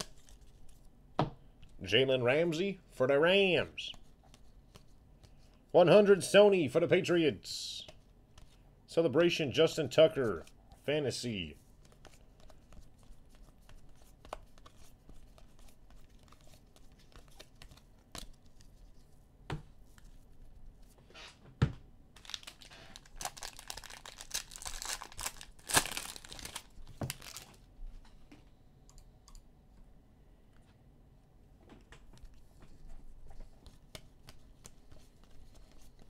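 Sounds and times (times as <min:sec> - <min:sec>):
foil wrapper tearing and crinkling: 0:22.2 - 0:27.6.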